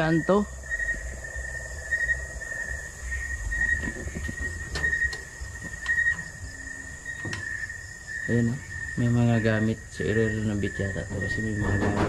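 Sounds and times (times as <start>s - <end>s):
high continuous insect buzz: 0.0s - 12.0s
insects chirring: 0.0s - 12.0s
handling rumble: 0.6s - 12.0s.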